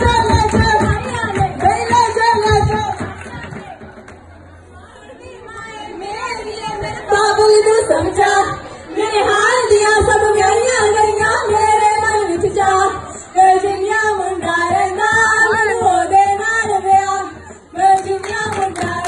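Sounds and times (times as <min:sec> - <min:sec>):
women singing a folk song: 0:00.0 - 0:03.1, 0:05.4 - 0:19.0.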